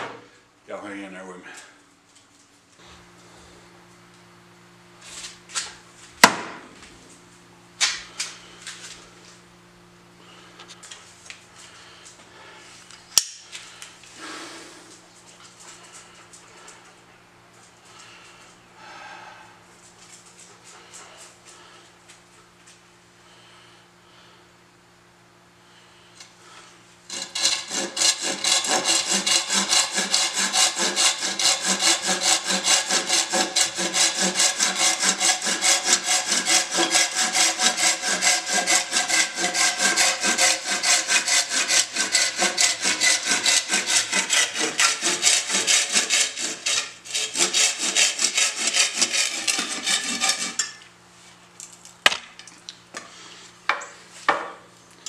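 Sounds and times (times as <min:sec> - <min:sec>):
saw cutting wood: 0:27.1 - 0:50.8.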